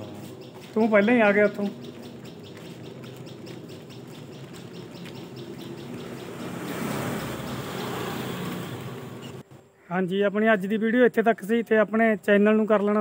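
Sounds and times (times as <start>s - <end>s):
engine-like hum: 0.0s - 9.5s
bird chirping: 0.0s - 9.9s.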